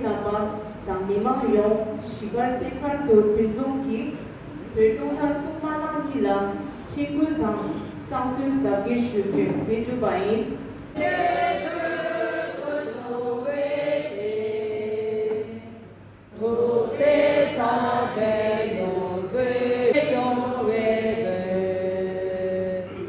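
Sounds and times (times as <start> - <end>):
group chanting in unison: 11.0 - 22.7.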